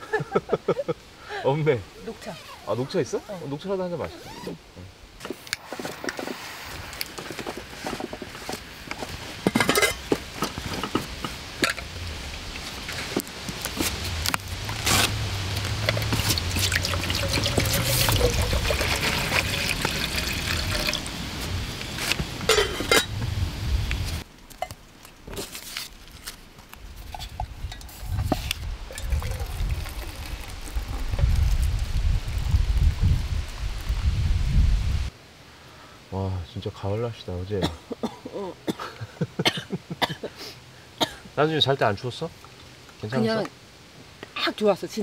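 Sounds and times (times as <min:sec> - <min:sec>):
water pouring: 0:15.6 - 0:21.5, 0:27.8 - 0:33.0.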